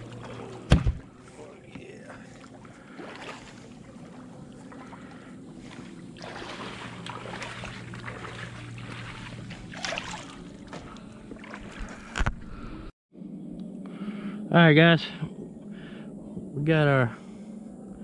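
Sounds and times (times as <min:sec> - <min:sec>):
water sloshing and splashing: 0:00.0 - 0:12.7.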